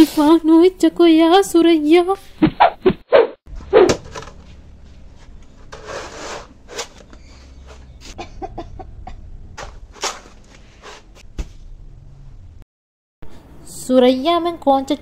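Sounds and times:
scraping rub: 0:04.4 - 0:08.2, 0:09.6 - 0:11.3.

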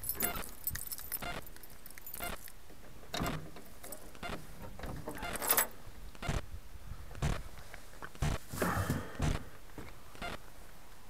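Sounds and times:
footsteps crunching on gritty ground: 0:07.2 - 0:10.4.

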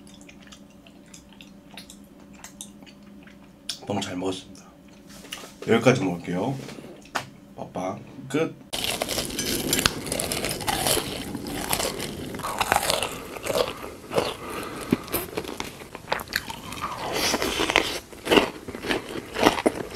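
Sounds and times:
crunchy chewing of food: 0:00.0 - 0:03.8, 0:08.7 - 0:19.9.

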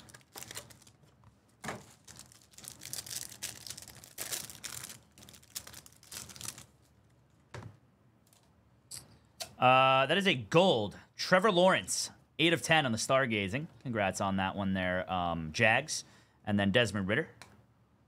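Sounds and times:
cards and wrappers rustling: 0:00.0 - 0:06.9.

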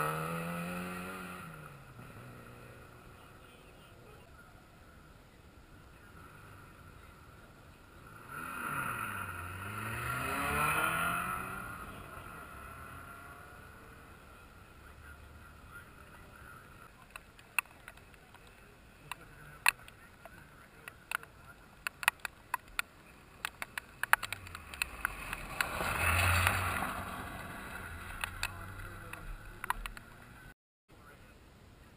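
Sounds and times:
rally car engine passing: 0:00.0 - 0:04.4, 0:05.8 - 0:30.6
sharp clicks: 0:17.0 - 0:26.9, 0:27.8 - 0:30.4.

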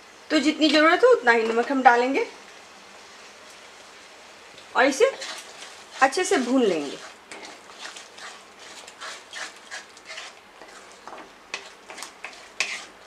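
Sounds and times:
faint sizzle: 0:00.0 - 0:13.0
wooden spatula scraping paste: 0:05.1 - 0:13.0.

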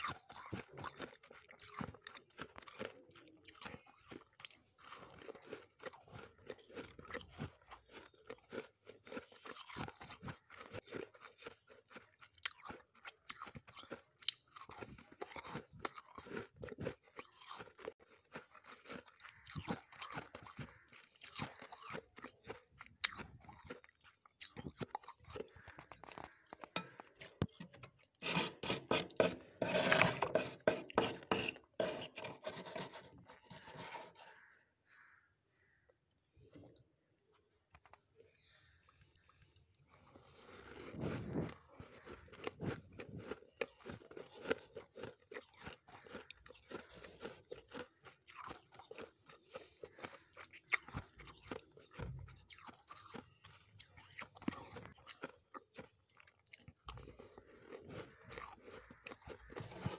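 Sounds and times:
frost being chewed: 0:00.0 - 0:34.5, 0:37.5 - 0:59.9
metal spoon digging into frost: 0:26.8 - 0:34.2.

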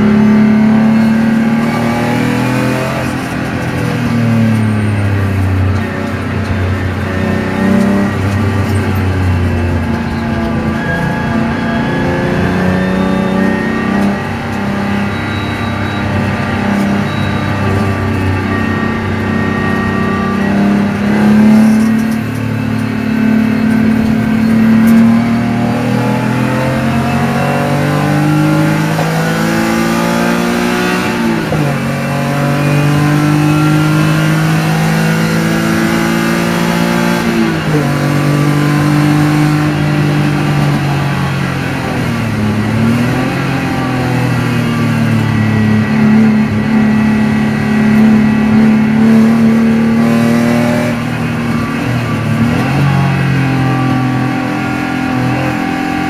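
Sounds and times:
car engine pulling hard: 0:00.0 - 0:56.0.

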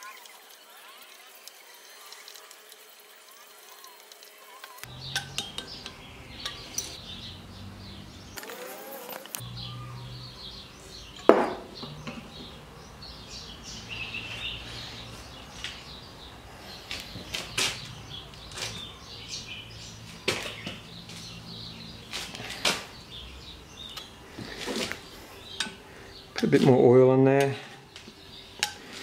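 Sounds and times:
faint bird chirps: 0:08.3 - 0:12.3.

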